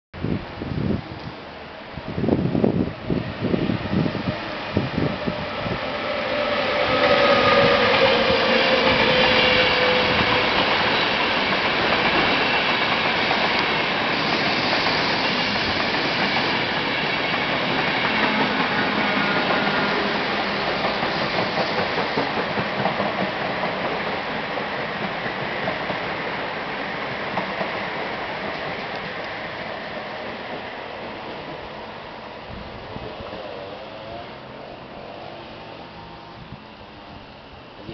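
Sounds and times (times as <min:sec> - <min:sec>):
locomotive whine: 0:02.4 - 0:12.8, 0:18.0 - 0:22.4
train carriages rushing and clattering: 0:03.1 - 0:35.2.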